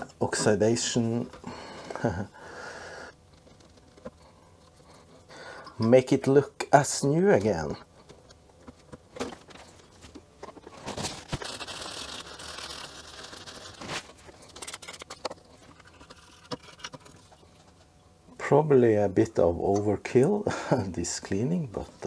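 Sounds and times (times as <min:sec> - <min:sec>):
cloth rubbing on circuit board: 0:10.7 - 0:14.4.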